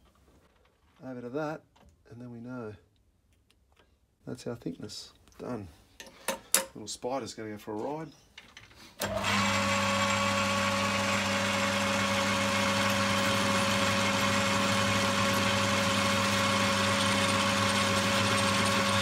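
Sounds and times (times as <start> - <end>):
lathe motor humming and whining: 9.0 - 19.0
tool cutting spinning metal bar: 9.0 - 19.0.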